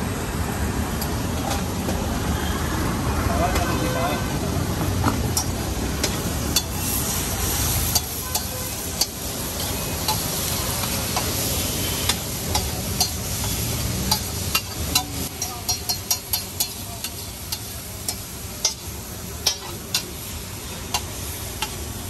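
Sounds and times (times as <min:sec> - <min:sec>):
food sizzling: 0:04.4 - 0:22.0.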